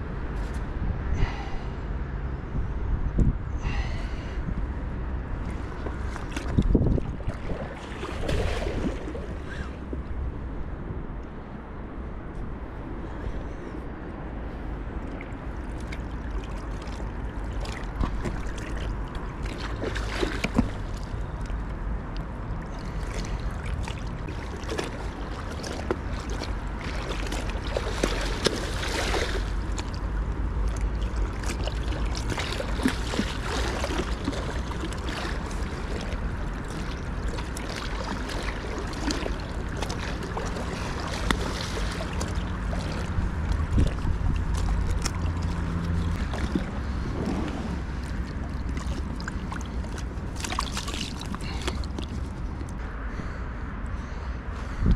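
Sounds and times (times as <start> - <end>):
wind rumble: 0.0 - 54.9
water lapping against boat: 3.6 - 10.4, 13.0 - 54.9
fish splashing at surface: 22.9 - 30.0, 30.7 - 52.2.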